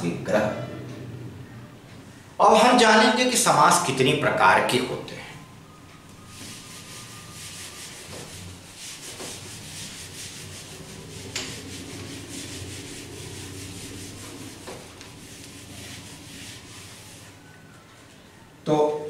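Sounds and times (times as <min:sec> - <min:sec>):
eraser scrubbing whiteboard: 0:06.2 - 0:17.6.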